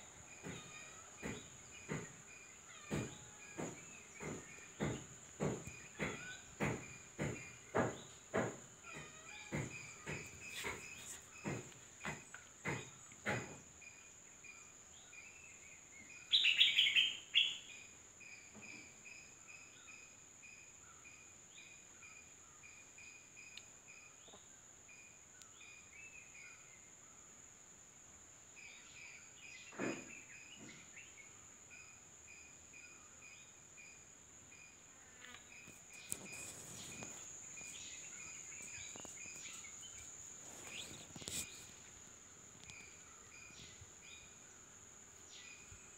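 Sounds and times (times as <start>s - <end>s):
insects chirping: 0.0s - 45.9s
knocks: 0.4s - 2.2s, 2.8s - 13.6s.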